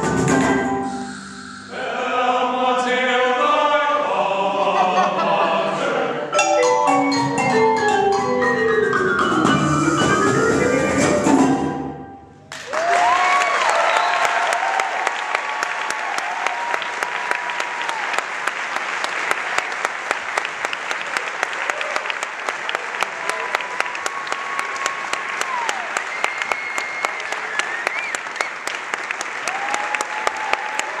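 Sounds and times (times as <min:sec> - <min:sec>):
audience cheering: 0:12.5 - 0:31.0
audience clapping: 0:12.5 - 0:31.0.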